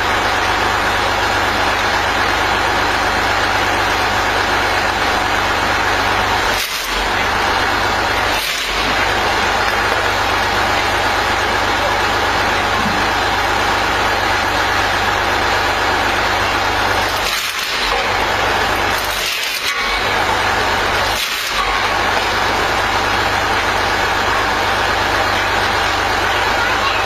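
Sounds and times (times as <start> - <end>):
engine running: 0.0 - 27.0
wood cracking and splintering: 6.2 - 10.4, 16.7 - 23.8.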